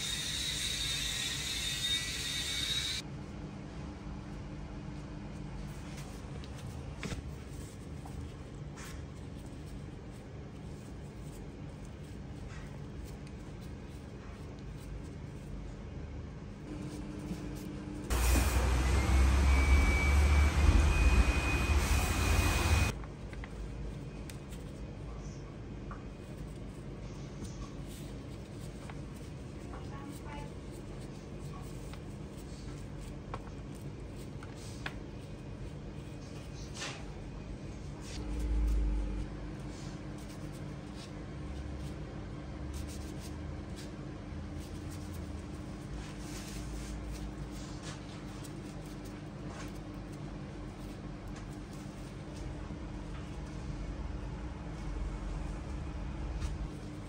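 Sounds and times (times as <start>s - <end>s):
steady low hum: 2.7s - 57.0s
wood fire roaring: 17.8s - 23.0s.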